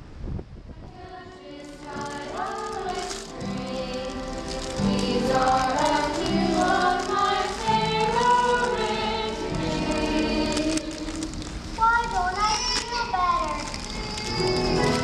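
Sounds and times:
group singing: 0.9s - 11.4s.

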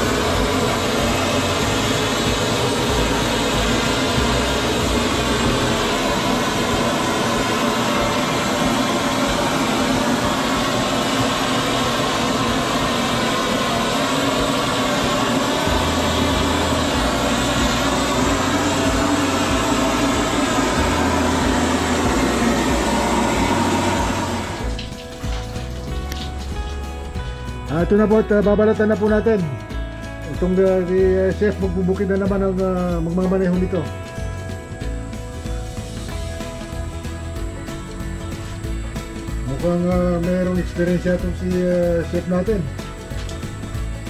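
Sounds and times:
gas torch flame rushing: 0.0s - 28.3s.

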